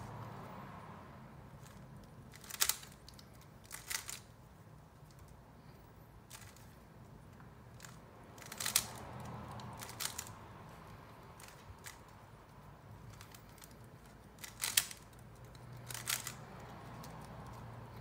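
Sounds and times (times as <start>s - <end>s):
rubik's cube turning clicks: 1.6s - 4.3s, 7.8s - 10.4s, 13.1s - 17.7s.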